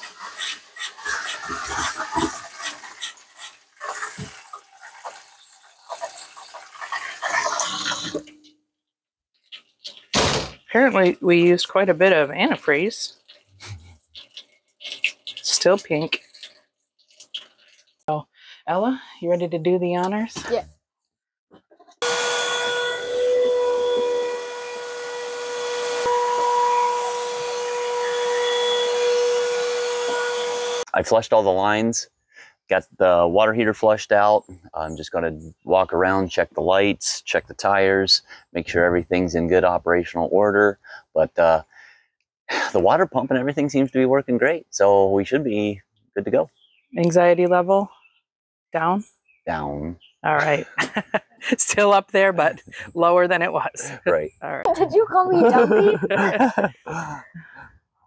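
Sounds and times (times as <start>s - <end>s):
liquid spurting into a metal sink: 0.0s - 8.4s, 12.7s - 18.0s
vacuum cleaner whining: 22.0s - 30.9s.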